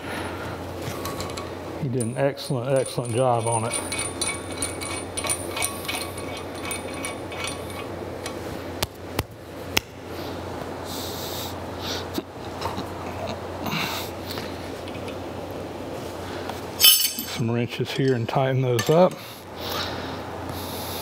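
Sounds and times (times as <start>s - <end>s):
steady low hum: 0.0s - 21.0s
metallic clinks of bolts: 16.8s - 17.4s.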